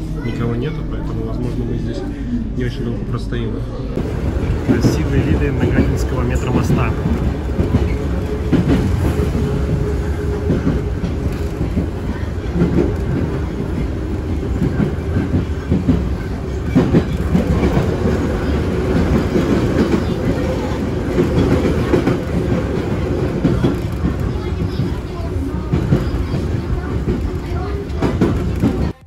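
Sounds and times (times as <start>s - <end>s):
oncoming train passing: 0.0s - 29.0s
train motor hum: 1.5s - 29.0s
train wheels clattering on rails: 4.0s - 29.0s.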